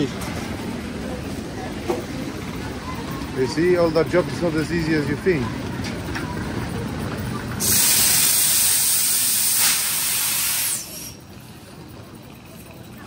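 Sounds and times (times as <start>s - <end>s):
compressed air hissing: 7.6s - 11.2s.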